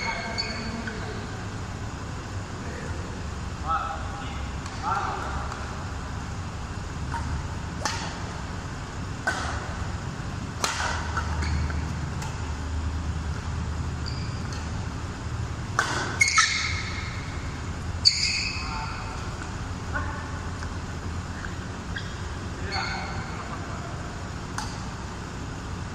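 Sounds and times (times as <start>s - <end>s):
shoes squeaking on court: 0.0s - 1.4s, 10.6s - 12.6s, 13.4s - 14.9s, 15.7s - 19.6s, 20.6s - 23.7s
steady low hum: 0.0s - 25.9s
rackets hitting shuttlecock: 7.0s - 12.7s, 13.3s - 15.0s, 15.6s - 19.7s, 20.5s - 25.7s.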